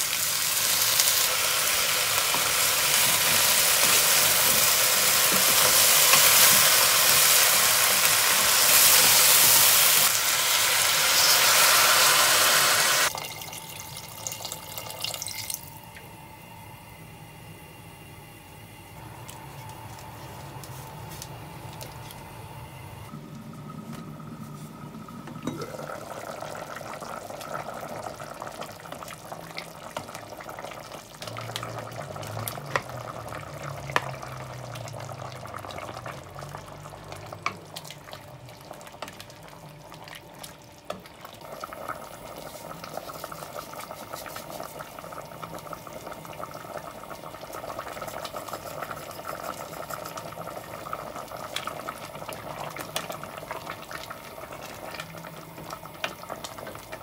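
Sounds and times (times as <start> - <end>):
stock bubbling in pot: 25.0 - 40.0.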